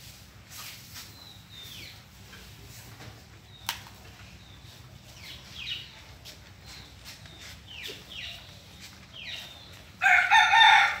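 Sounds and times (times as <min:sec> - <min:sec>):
bird chirping: 0:00.9 - 0:02.7, 0:03.3 - 0:10.9
rooster crowing: 0:10.0 - 0:11.0.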